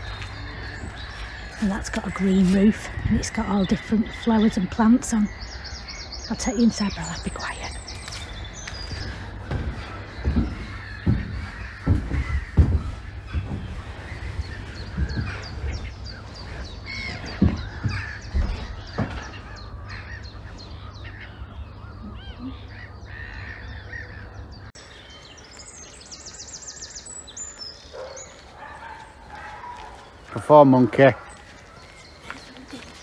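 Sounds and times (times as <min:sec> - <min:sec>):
birds cawing and chirping: 0:00.0 - 0:33.0
dull thumps: 0:08.7 - 0:19.4.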